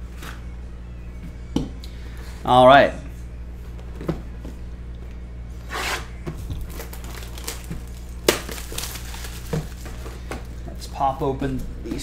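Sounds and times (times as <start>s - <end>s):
sharp plastic crack: 6.5s - 10.0s
plastic shrink-wrap tearing: 6.5s - 10.1s.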